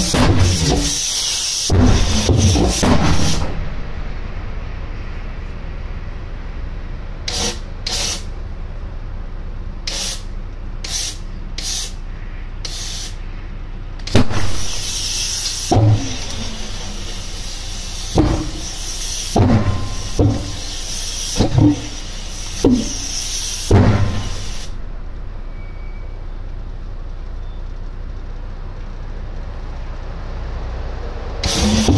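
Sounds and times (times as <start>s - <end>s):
puffs of starting air: 0.0s - 3.5s, 7.2s - 8.4s, 9.8s - 13.4s, 14.0s - 24.8s, 31.4s - 31.9s
hissing air blast: 0.0s - 3.7s, 7.2s - 8.3s, 9.8s - 12.0s, 12.6s - 13.3s, 14.1s - 24.8s, 31.4s - 31.9s
engine bangs: 0.0s - 31.9s
low hum: 1.7s - 12.6s.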